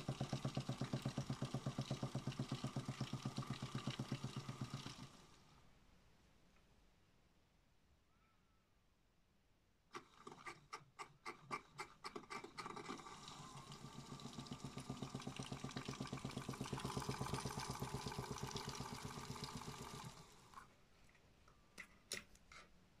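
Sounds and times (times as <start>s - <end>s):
toy washing machine spinning: 0.0s - 5.2s, 11.7s - 20.5s.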